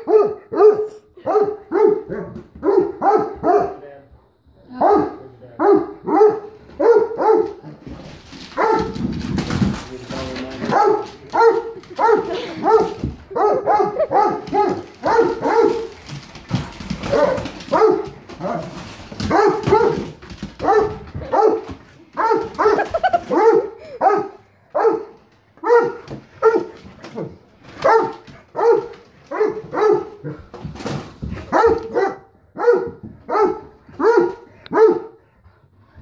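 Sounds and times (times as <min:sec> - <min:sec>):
dog barking: 0:00.0 - 0:03.8, 0:04.8 - 0:07.7, 0:08.6 - 0:09.0, 0:10.7 - 0:15.9, 0:17.0 - 0:20.0, 0:20.6 - 0:21.6, 0:22.2 - 0:30.4, 0:31.5 - 0:35.2.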